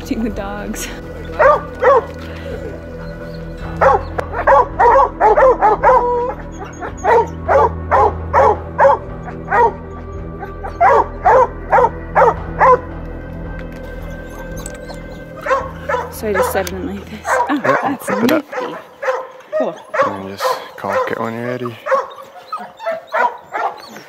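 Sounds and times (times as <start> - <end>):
hunting dogs barking and baying: 0.6 - 24.0.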